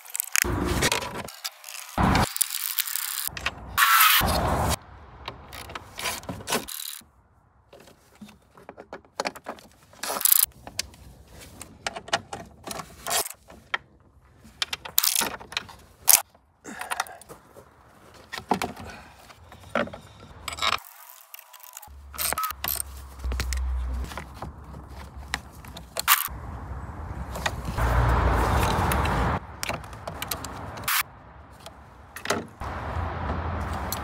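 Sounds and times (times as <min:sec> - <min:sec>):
tools clicking and rattling: 0:05.3 - 0:07.0, 0:08.2 - 0:10.9, 0:11.7 - 0:17.3, 0:19.6 - 0:26.3, 0:28.6 - 0:31.0.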